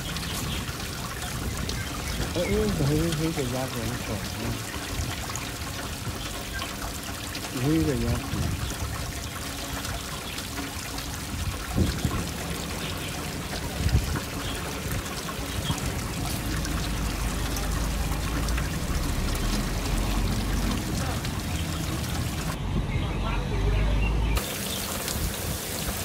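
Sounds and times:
splashing and trickling water: 0:00.0 - 0:22.6, 0:24.4 - 0:26.0
wind rumble on microphone: 0:08.1 - 0:09.3, 0:11.2 - 0:12.5, 0:13.6 - 0:15.8.

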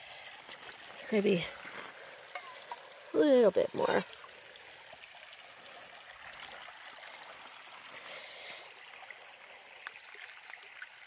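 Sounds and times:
stream trickling: 0:00.0 - 0:11.0
water pouring into a bag: 0:03.1 - 0:11.0.

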